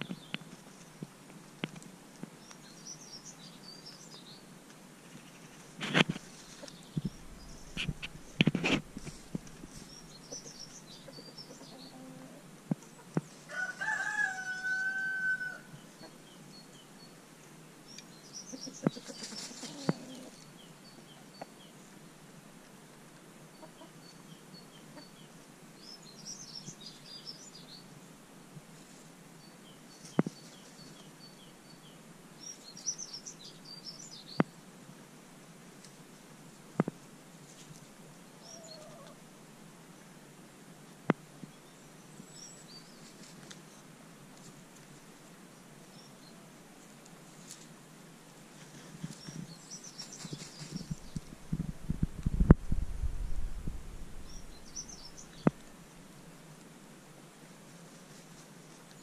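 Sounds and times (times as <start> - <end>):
small birds chirping: 0.0 - 14.8, 15.6 - 22.0, 23.5 - 34.7, 38.2 - 39.2, 48.5 - 52.8, 53.6 - 55.8
rooster crowing: 13.5 - 15.7.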